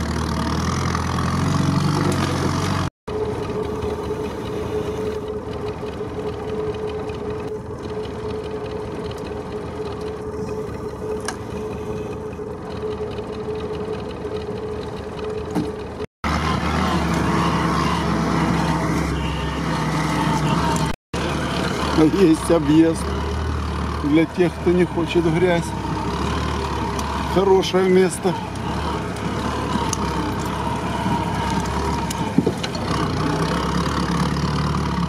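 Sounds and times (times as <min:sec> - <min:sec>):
jeep engine running inside cab: 0:00.0 - 0:35.0
steady single-pitched hum: 0:03.1 - 0:16.1.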